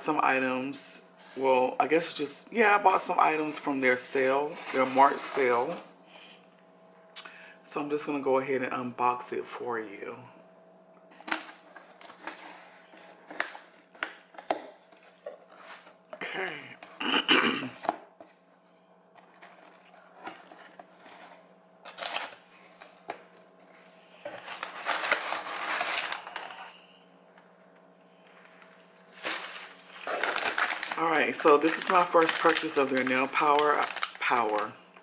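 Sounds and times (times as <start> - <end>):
packing paper rustling: 4.5 - 5.9, 11.1 - 16.0, 19.1 - 26.8, 29.0 - 34.9.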